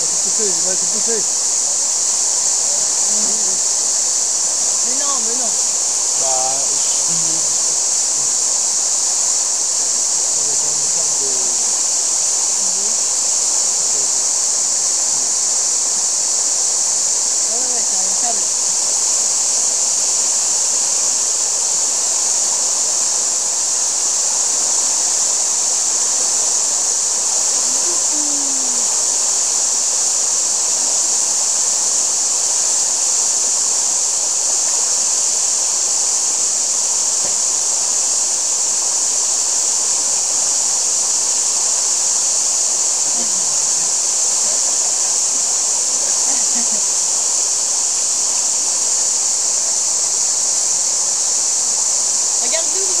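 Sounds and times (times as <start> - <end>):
faint voices: 0.0 - 1.6, 2.5 - 8.0, 10.6 - 11.7, 17.4 - 18.8, 27.4 - 29.0, 46.0 - 47.0, 52.4 - 53.0.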